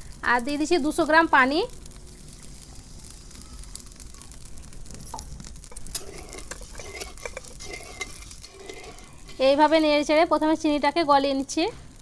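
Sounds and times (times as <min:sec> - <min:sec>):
metal spatula scraping pan: 0:05.7 - 0:10.3.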